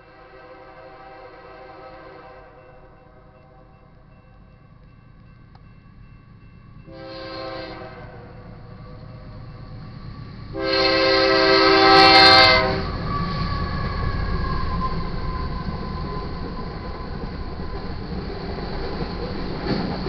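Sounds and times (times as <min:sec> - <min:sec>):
locomotive air horn blast: 0:00.0 - 0:02.7, 0:06.9 - 0:09.1, 0:10.5 - 0:13.6
freight train rumbling past: 0:00.0 - 0:20.0.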